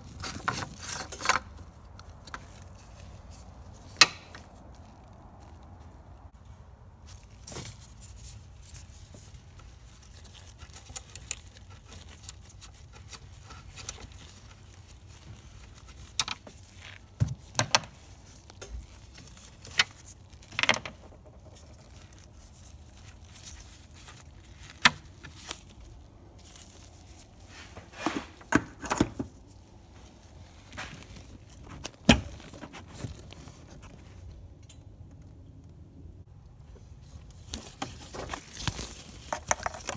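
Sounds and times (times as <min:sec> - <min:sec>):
clicks of handling plastic parts: 0:37.5 - 0:39.9.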